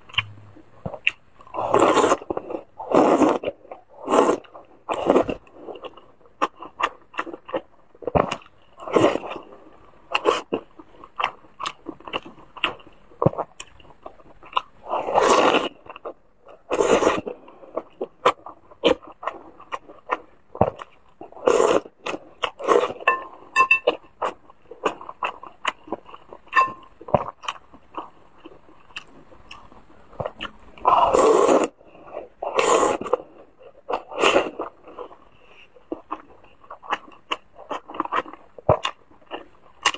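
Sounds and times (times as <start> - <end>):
wet chewing: 0.0 - 39.9
slurping noodles: 1.5 - 5.9, 14.8 - 19.5, 21.3 - 23.2, 30.2 - 37.0.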